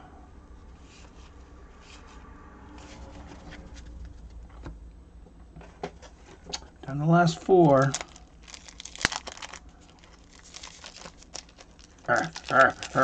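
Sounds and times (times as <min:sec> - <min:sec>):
low steady hum: 0:00.0 - 0:13.0
cards rustling: 0:07.1 - 0:13.0.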